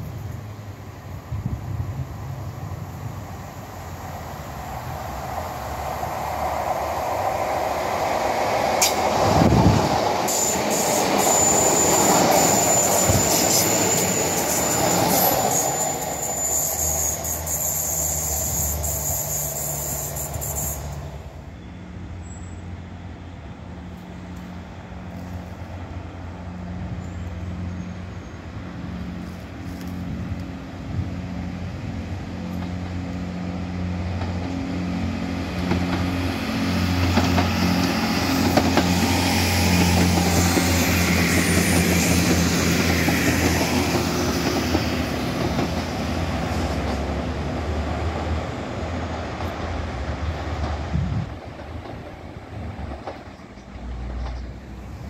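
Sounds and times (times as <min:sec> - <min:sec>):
diesel train engine hum: 0:00.0 - 0:55.0
train passing rumble: 0:00.0 - 0:55.0
high squeal: 0:10.3 - 0:22.8, 0:37.6 - 0:44.3.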